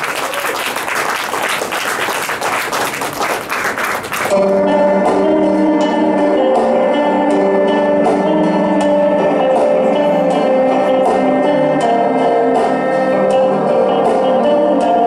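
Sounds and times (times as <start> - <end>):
audience applauding: 0.0 - 4.4
band playing sustained chords: 4.3 - 15.0.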